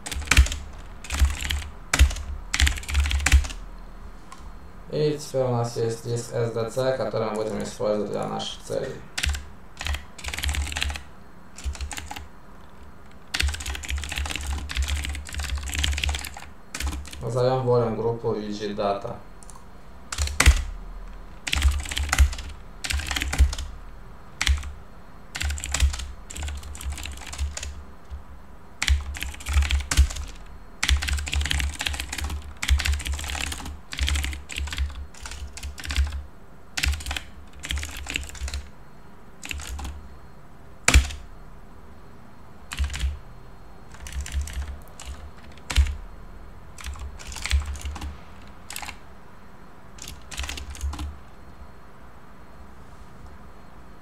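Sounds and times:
typing on keyboard: 0.0 - 3.6, 9.2 - 17.2, 19.4 - 20.7, 21.4 - 23.7, 24.4 - 24.7, 25.3 - 28.2, 28.8 - 36.2, 36.8 - 38.7, 39.4 - 40.0, 40.9 - 41.2, 42.7 - 43.2, 43.9 - 46.0, 46.8 - 49.0, 50.0 - 51.1.

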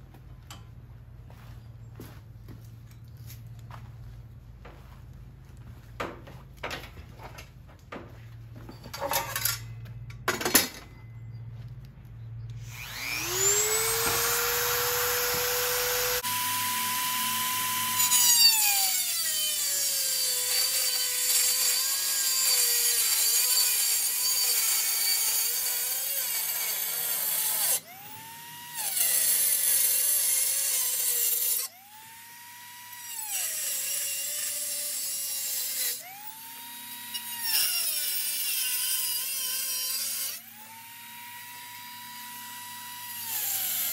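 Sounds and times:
rotary tool grinding metal: 12.6 - 43.9.

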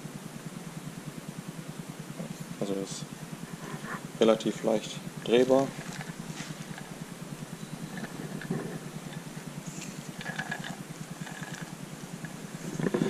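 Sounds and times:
fast-pulsing low machine hum: 0.0 - 13.0
metal parts clicking and scraping: 5.8 - 6.9, 7.9 - 11.7.

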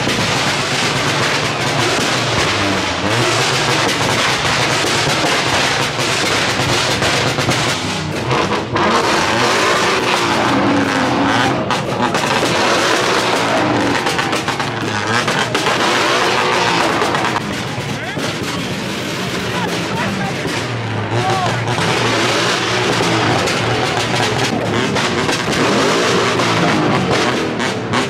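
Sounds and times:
car engines revving: 0.0 - 28.0.

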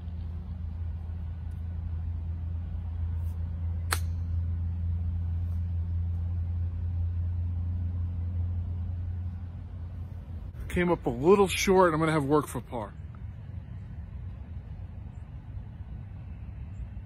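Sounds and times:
steady low rumble: 0.0 - 17.0
golf club striking ball: 3.8 - 4.5.

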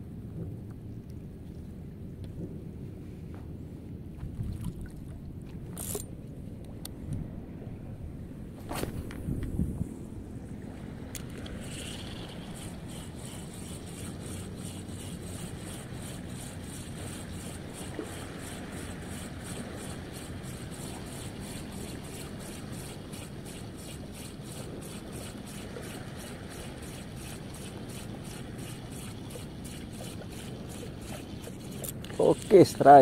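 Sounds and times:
fishing reel ticking: 5.8 - 6.0, 11.2 - 33.0.

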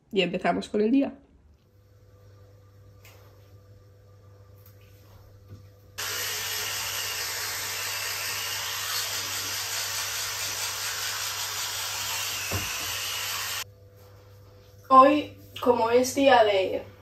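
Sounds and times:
electric toothbrush buzzing: 6.0 - 13.7.

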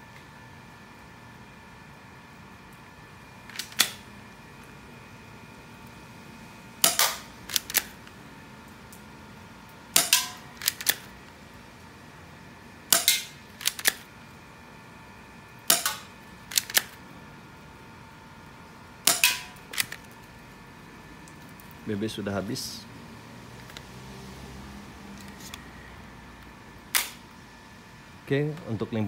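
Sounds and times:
airsoft pistol shots: 6.8 - 7.9, 10.0 - 11.0, 12.9 - 14.0, 15.7 - 16.9, 19.1 - 19.9, 26.9 - 27.2.

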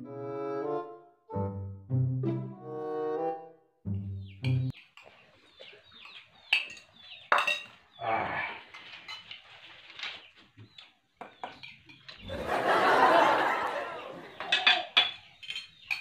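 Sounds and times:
small birds chirping: 3.9 - 12.3, 14.2 - 16.0
plates and cutlery clinking: 4.4 - 7.8, 8.7 - 9.6, 11.2 - 12.3, 14.3 - 16.0.

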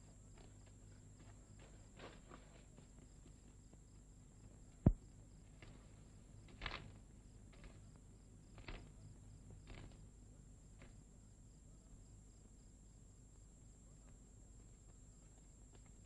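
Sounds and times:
film soundtrack hiss and hum: 0.0 - 16.0
faint footsteps: 0.3 - 8.0.

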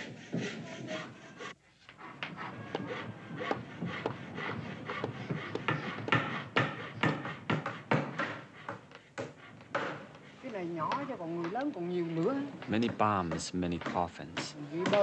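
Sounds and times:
wooden boards knocking: 12.6 - 15.0.

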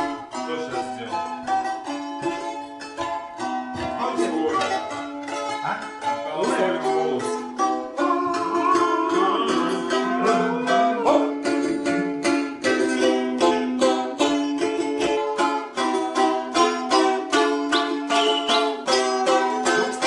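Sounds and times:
balalaikas strummed: 0.0 - 20.0.

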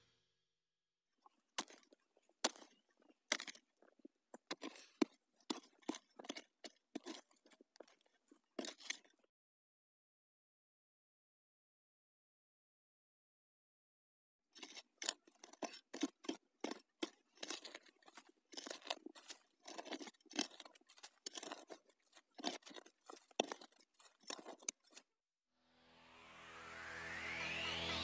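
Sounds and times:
electronic music with rising sweep: 25.6 - 28.0.

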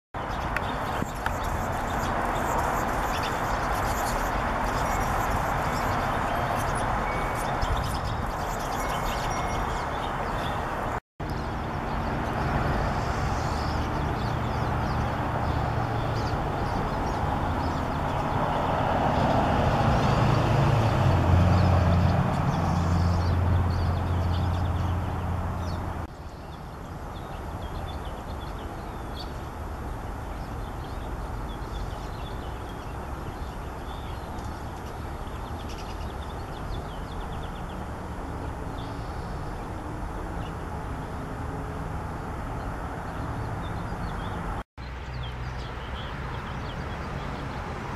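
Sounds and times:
small birds chirping: 0.2 - 18.7, 21.5 - 29.5, 30.2 - 41.1.

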